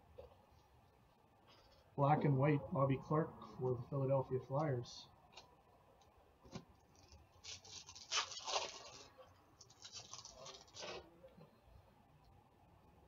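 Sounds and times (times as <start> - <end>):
foil wrapper crinkling: 6.8 - 11.0.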